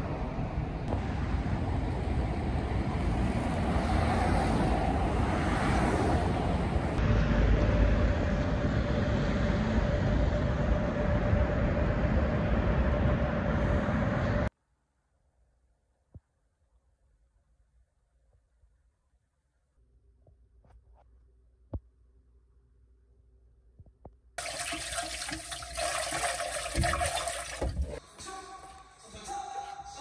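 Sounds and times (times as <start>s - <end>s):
street noise: 0.0s - 14.5s
wind rumbling on microphone: 0.0s - 14.5s, 26.7s - 28.0s.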